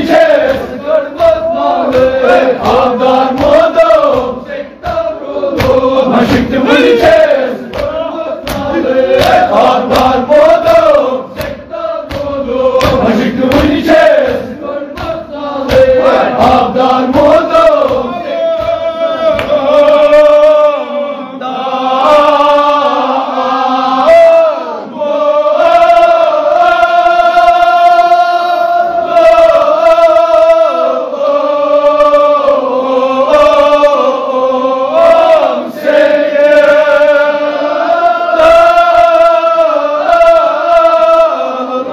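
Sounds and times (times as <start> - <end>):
sharp rhythmic strikes: 0.0 - 20.1
men chanting together: 0.0 - 41.9.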